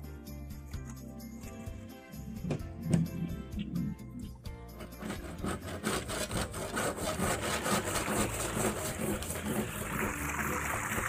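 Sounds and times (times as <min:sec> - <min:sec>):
rough rattling: 0:04.7 - 0:09.9
water pouring and splashing: 0:07.0 - 0:11.0.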